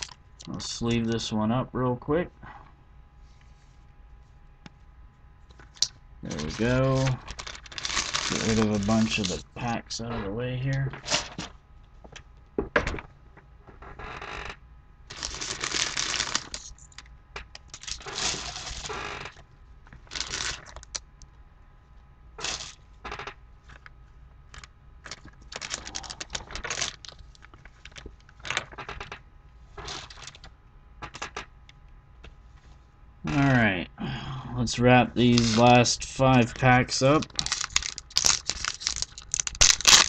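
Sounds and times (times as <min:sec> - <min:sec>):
plastic wrappers crinkling: 0:00.0 - 0:00.5, 0:05.5 - 0:09.8, 0:15.1 - 0:21.1, 0:22.4 - 0:22.8, 0:24.5 - 0:29.0, 0:29.8 - 0:30.5, 0:35.2 - 0:40.0.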